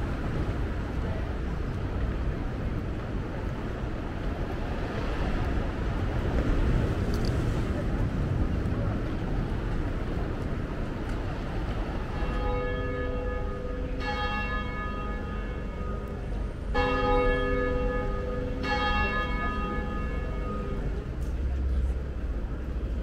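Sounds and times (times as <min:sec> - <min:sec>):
church bell striking: 0:12.0 - 0:21.1.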